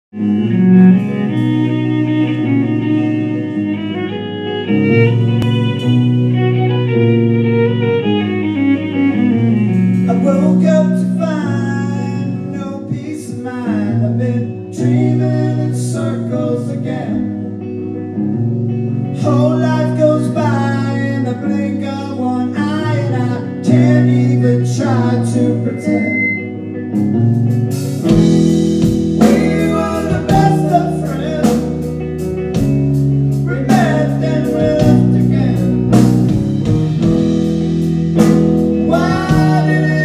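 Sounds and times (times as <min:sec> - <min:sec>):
drums: 0:00.1 - 0:03.5, 0:09.1 - 0:13.6, 0:26.0 - 0:40.0
bass guitar: 0:00.1 - 0:40.0
electric guitar: 0:00.1 - 0:40.0
violin sliding notes: 0:00.2 - 0:12.4.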